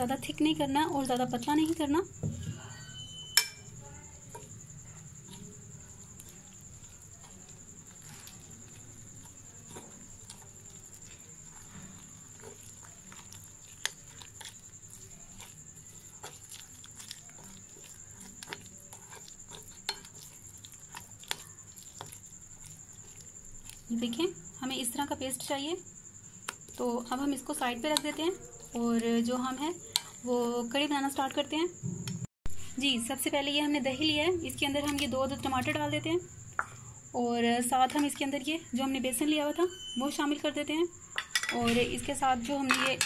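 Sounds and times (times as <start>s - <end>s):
batter squelching: 0.0s - 31.8s, 32.7s - 42.9s
spoon clinking against glass: 2.8s - 3.7s.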